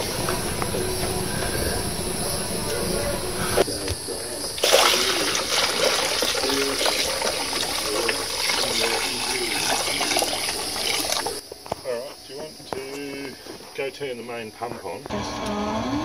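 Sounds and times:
liquid pouring into funnel: 0:04.6 - 0:11.4.

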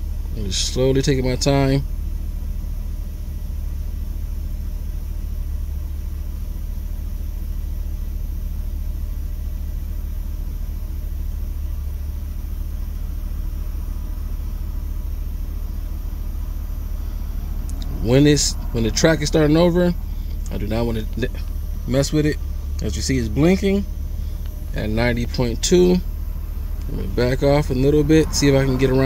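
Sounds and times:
low bass test tone: 0:07.5 - 0:29.0.

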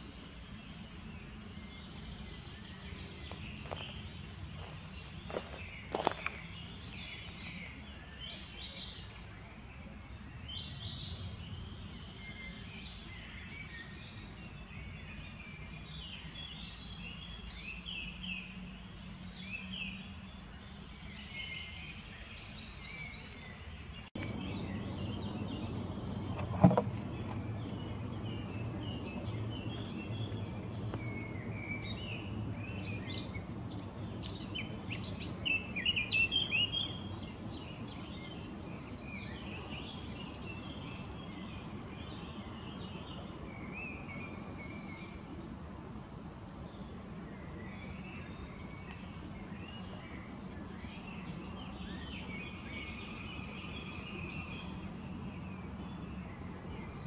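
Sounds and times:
nightingale singing: 0:00.0 - 0:57.0
low background rumble: 0:23.8 - 0:51.9.

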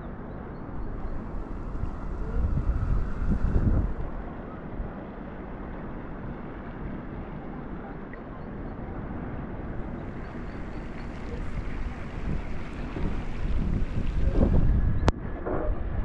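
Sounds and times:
steady low rumble: 0:00.1 - 0:06.1, 0:09.1 - 0:15.3
wind buffeting microphone: 0:00.2 - 0:05.0, 0:09.6 - 0:16.0.

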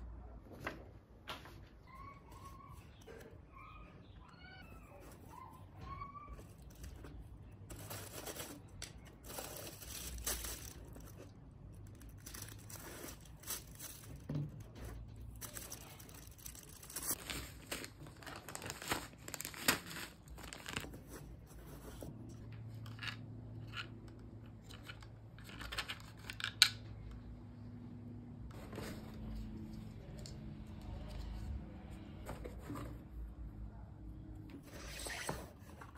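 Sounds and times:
plastic bags crinkling: 0:07.7 - 0:14.3, 0:15.3 - 0:21.0.

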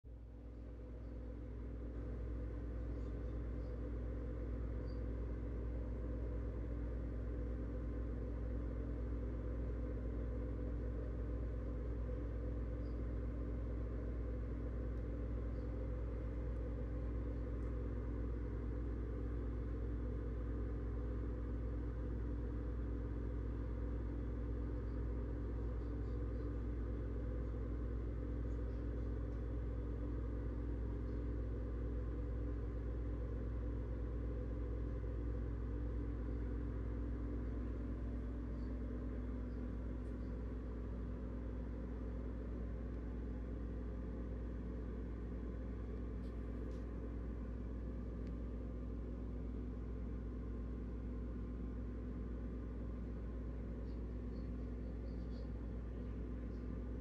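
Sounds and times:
low mechanical hum: 0:00.0 - 0:57.0.

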